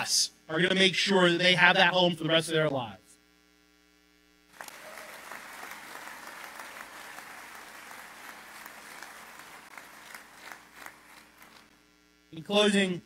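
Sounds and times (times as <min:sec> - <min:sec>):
audience applauding: 0:04.5 - 0:11.7.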